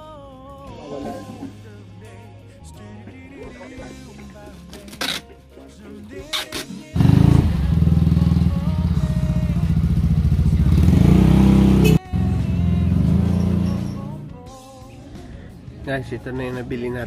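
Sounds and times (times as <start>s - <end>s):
motor scooter engine: 7.0s - 14.1s.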